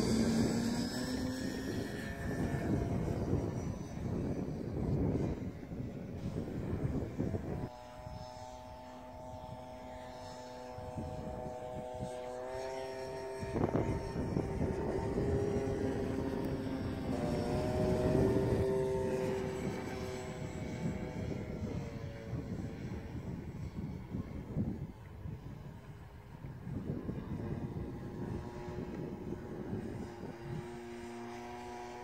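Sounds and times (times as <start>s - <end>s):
model plane motor whine: 0.0s - 32.0s
wind buffeting microphone: 0.0s - 32.0s.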